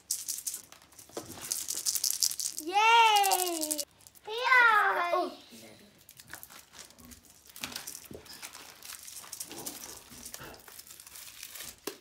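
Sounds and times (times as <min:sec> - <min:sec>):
foil wrapper crinkling: 0:06.0 - 0:12.0.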